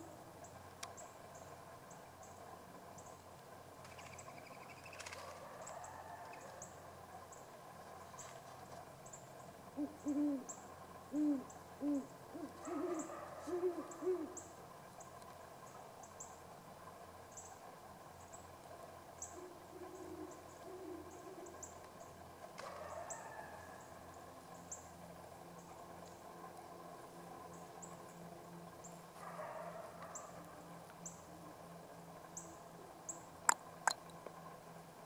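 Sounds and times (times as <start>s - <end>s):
owl hooting: 9.7s - 14.6s, 19.2s - 21.7s.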